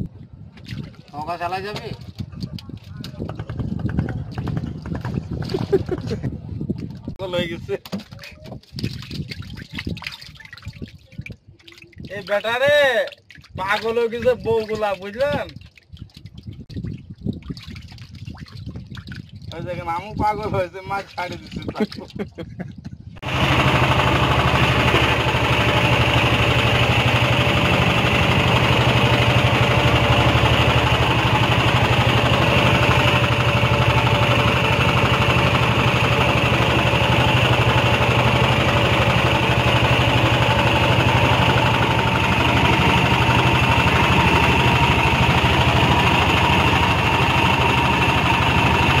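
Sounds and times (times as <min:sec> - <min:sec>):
boat engine chugging: 0:01.3 - 0:06.6, 0:23.2 - 0:49.0.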